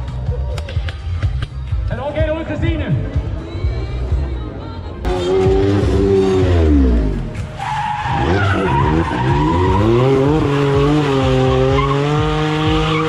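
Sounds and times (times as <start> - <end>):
car engine revving: 5.0 - 13.0
tyres squealing: 7.5 - 13.0.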